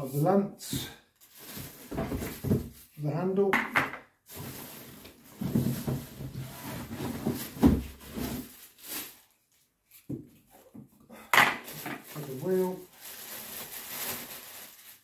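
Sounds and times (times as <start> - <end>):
plastic bag crinkle: 1.2 - 3.0, 4.3 - 9.6, 11.6 - 15.0
plastic rustling against cardboard: 1.2 - 3.0, 4.3 - 10.6, 11.6 - 15.0.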